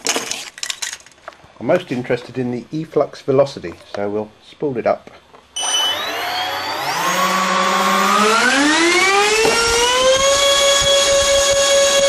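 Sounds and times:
electric ducted fans whining: 0:05.6 - 0:12.0.

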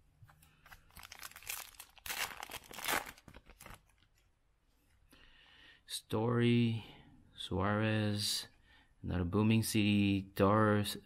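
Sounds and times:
foil wrapper tearing and crinkling: 0:00.7 - 0:04.1.

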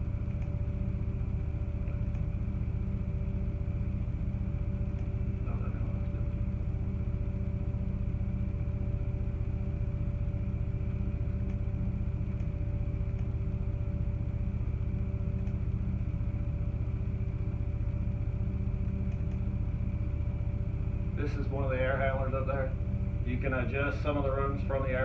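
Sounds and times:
low machine hum: 0:00.0 - 0:25.0
faint clicks: 0:00.3 - 0:00.6, 0:04.9 - 0:05.2, 0:11.4 - 0:11.6, 0:12.3 - 0:13.3, 0:15.4 - 0:15.6, 0:19.0 - 0:19.5.

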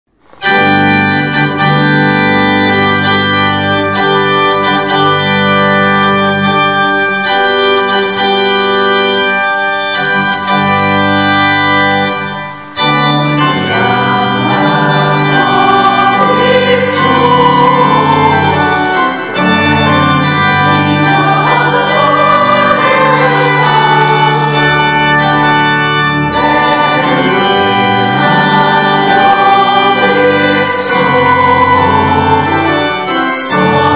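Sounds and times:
organ playing held chords: 0:00.2 - 0:33.9
person singing hymn-like melody: 0:12.6 - 0:33.9.

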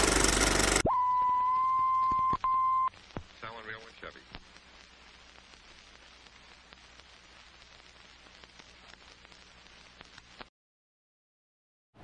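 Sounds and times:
faint hiss: 0:01.8 - 0:10.5
small crackles: 0:02.0 - 0:10.5.

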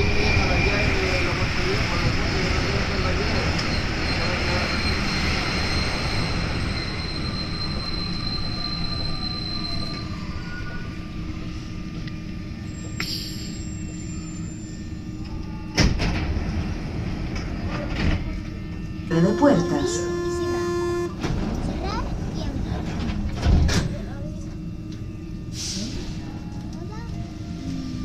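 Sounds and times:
metro train running noise: 0:00.0 - 0:28.0
high whine: 0:19.1 - 0:21.2.

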